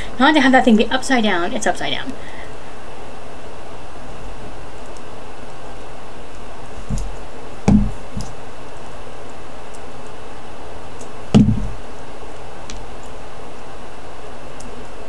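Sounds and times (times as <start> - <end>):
steady background hiss: 0.0 - 15.0
pliers knocking on mat: 6.9 - 8.4, 11.4 - 11.8.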